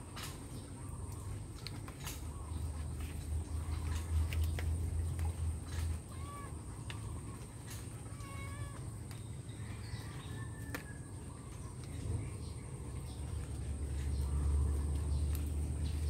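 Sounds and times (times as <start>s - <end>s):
cat meowing: 6.1s - 6.6s, 8.1s - 8.9s.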